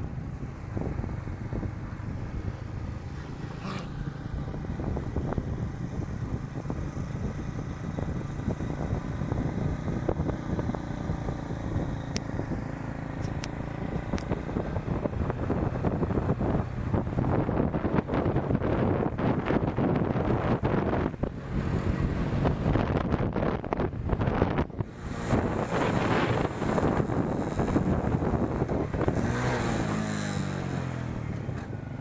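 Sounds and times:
motorcycle engine running: 0.0 - 32.0
road and wind noise: 0.0 - 32.0.

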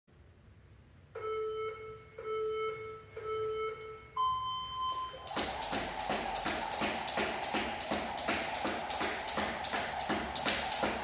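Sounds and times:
interval timer beeping: 1.2 - 11.0
jump rope slapping the floor: 5.2 - 11.0.

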